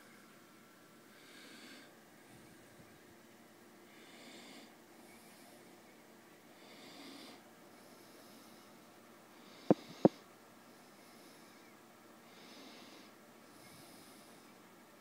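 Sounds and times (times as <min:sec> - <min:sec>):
slow breathing: 0:01.0 - 0:02.8, 0:06.6 - 0:14.7.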